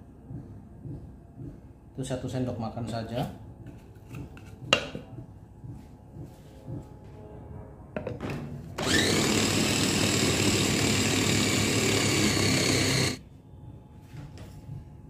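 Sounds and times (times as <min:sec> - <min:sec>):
food chopper motor whirring: 0:08.8 - 0:13.2.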